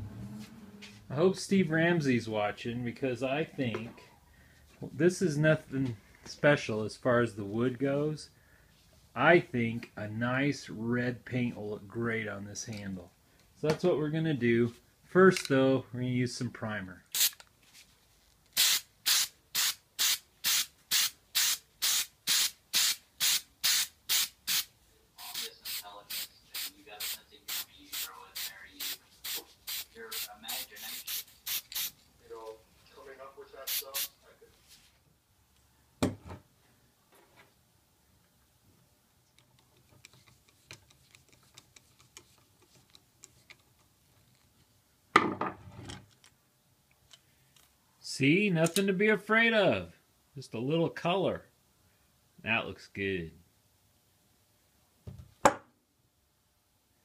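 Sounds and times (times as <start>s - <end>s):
aerosol spray bursts: 17.2s - 17.4s, 18.6s - 32.0s, 33.6s - 34.1s.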